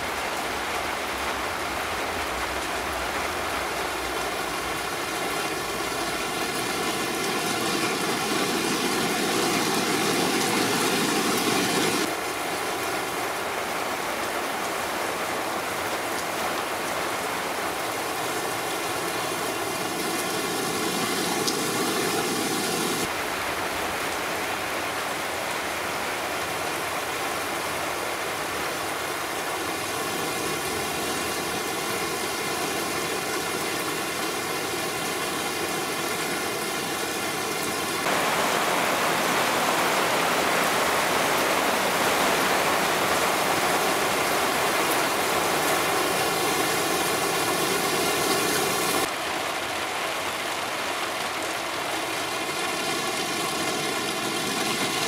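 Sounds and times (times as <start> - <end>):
heavy rain on asphalt: 0.0 - 55.0
car tyres swishing through water: 19.5 - 23.1.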